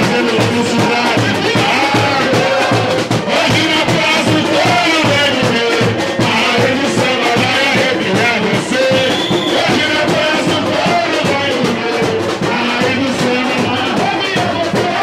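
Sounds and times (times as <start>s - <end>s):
percussion beat: 0.0s - 15.0s
person singing into a microphone: 0.0s - 15.0s.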